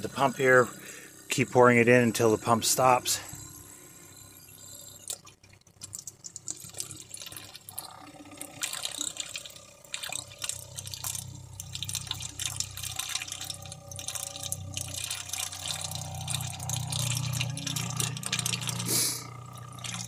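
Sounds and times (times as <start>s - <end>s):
water pump humming: 0.0s - 20.0s
liquid pouring from plastic bottle: 5.0s - 20.0s.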